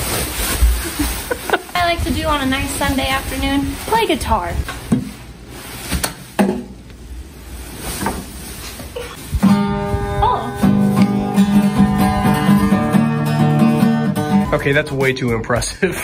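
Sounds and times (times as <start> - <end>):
guitar handling sounds: 7.9 - 15.4
acoustic guitar strumming: 9.4 - 15.7.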